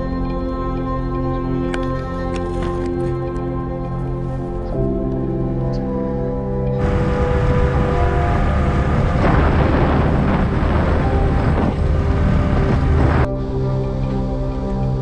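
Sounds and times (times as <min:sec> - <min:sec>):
wind on microphone: 0:06.7 - 0:13.6
motorcycle engine: 0:06.8 - 0:13.3.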